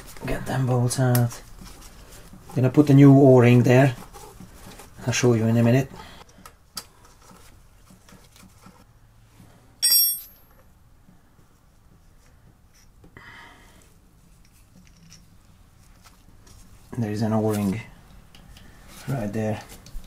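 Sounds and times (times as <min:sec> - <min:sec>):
sharp metallic clink: 0:09.8 - 0:10.5.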